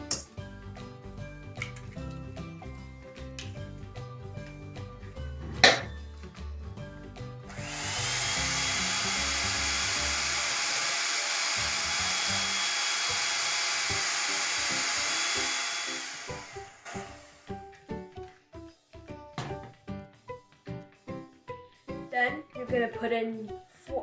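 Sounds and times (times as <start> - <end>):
background music: 0.0 - 24.0
electric hand mixer whining: 7.5 - 17.7.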